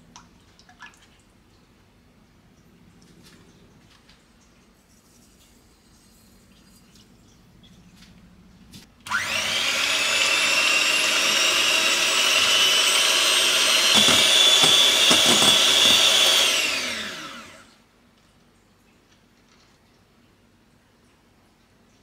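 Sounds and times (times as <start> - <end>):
electric hand mixer whining: 9.1 - 17.8
knocks: 13.9 - 16.1.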